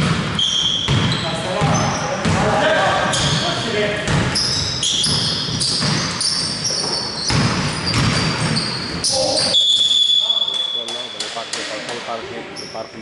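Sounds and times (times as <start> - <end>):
basketball bouncing: 0.0 - 9.6
sneakers squeaking: 0.0 - 11.8, 12.5 - 13.0
referee whistle: 8.6 - 11.1.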